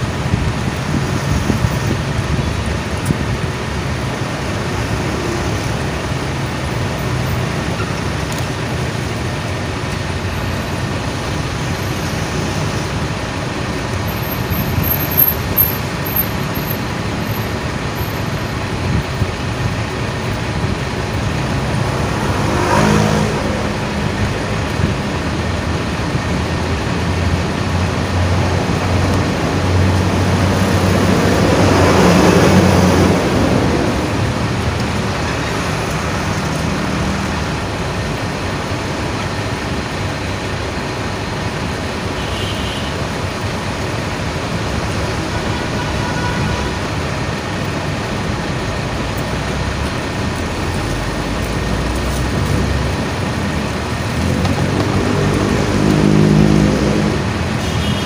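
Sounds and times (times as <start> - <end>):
traffic rumble: 0.0 - 58.0
vehicle passing: 20.6 - 25.7, 26.6 - 37.8, 49.2 - 57.6.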